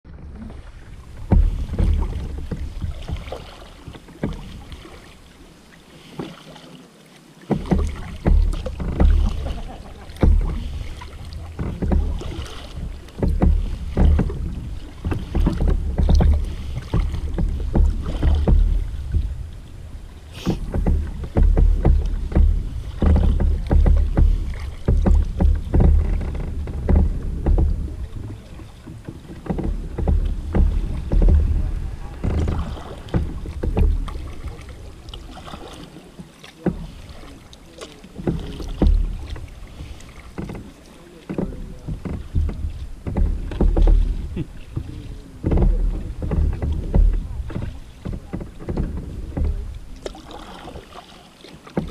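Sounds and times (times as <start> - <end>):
wind rumble on microphone: 0.0 - 3.6, 7.6 - 35.4, 41.4 - 50.1
water splashing against hull: 0.0 - 51.9.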